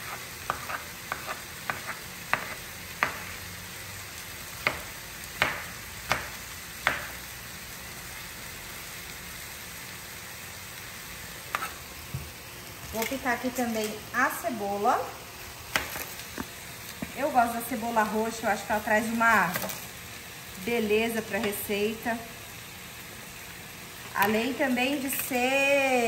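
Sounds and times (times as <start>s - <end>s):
meat sizzling in a pan: 0.0s - 26.0s
knife chopping on plastic board: 0.5s - 3.2s, 4.6s - 4.8s, 5.4s - 7.1s.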